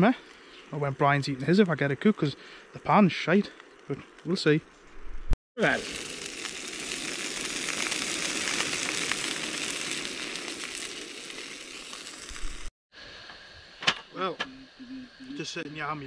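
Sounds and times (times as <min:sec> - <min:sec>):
burgers sizzling in a pan: 0:05.6 - 0:15.6.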